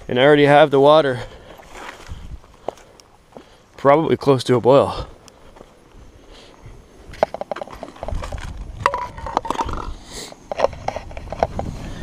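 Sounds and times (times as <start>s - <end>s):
footsteps on granite: 1.3s - 3.6s, 5.2s - 9.9s
metal mugs knocking: 8.8s - 9.9s.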